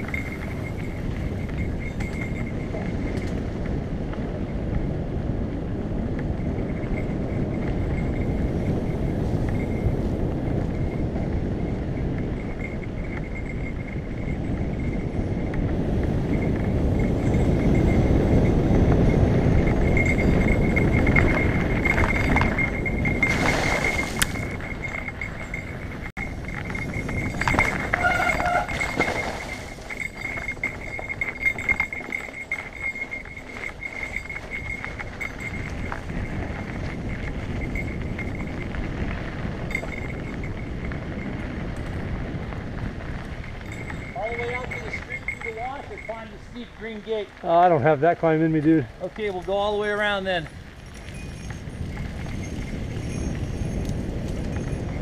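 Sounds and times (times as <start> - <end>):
bike tyre rumble: 0.0 - 55.0
wind buffeting: 0.0 - 55.0.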